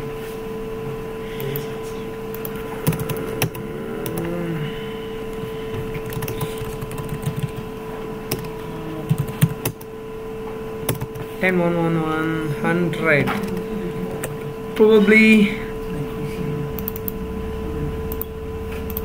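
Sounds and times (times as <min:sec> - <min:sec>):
electrical hum: 0:00.0 - 0:19.0
keyboard keystrokes: 0:02.4 - 0:04.2, 0:06.0 - 0:07.6.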